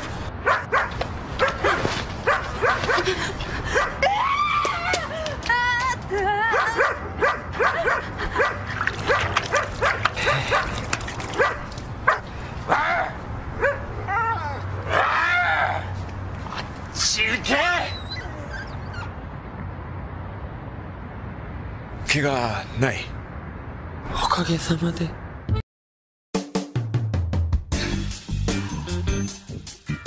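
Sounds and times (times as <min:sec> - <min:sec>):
dog barking: 0:00.4 - 0:03.0, 0:06.6 - 0:10.8, 0:11.4 - 0:13.9
dog whining: 0:17.7 - 0:19.2.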